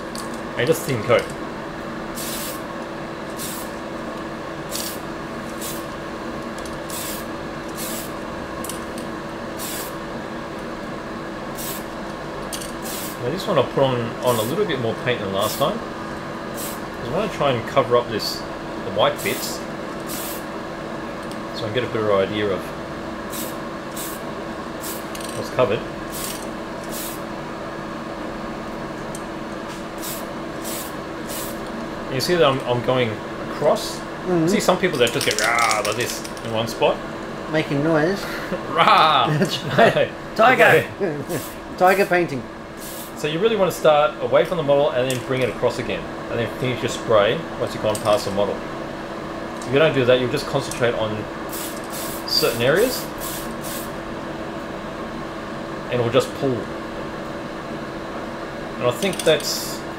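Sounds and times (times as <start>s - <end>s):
fan humming: 0.0s - 59.9s
spray paint can hissing: 2.2s - 2.6s, 3.3s - 3.7s, 4.7s - 5.0s, 5.6s - 5.9s, 6.9s - 8.1s, 9.6s - 10.0s, 11.6s - 11.9s, 12.8s - 13.2s, 16.6s - 16.8s, 20.1s - 20.4s, 23.3s - 24.2s, 24.8s - 25.1s, 26.1s - 27.2s, 30.0s - 31.6s, 42.8s - 43.1s, 51.5s - 53.9s.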